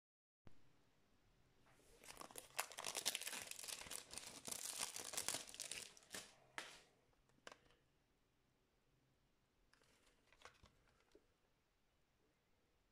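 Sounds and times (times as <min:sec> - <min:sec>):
plastic wrap crinkling: 0:02.0 - 0:06.9.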